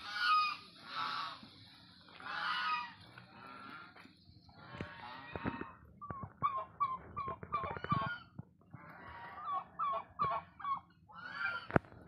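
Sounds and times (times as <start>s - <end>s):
fowl calling: 0.0s - 1.5s, 2.1s - 11.9s.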